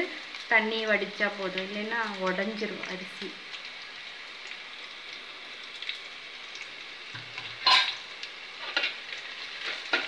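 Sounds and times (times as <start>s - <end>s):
onions sizzling in oil: 0.0s - 10.0s
metal utensil clank: 7.6s - 8.0s.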